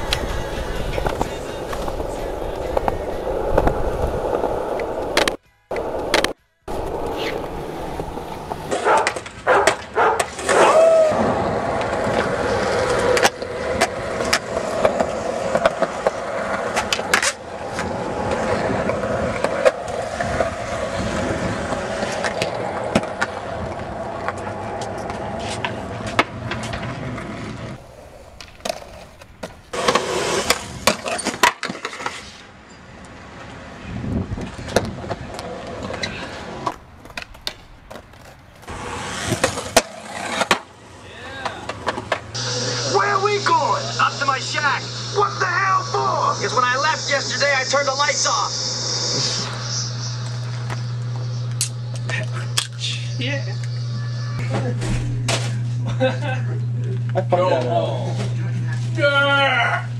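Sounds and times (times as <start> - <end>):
skateboard wheels rolling on concrete: 0.0 - 53.9
skateboard clacking on concrete: 4.8 - 7.5, 34.6 - 38.7.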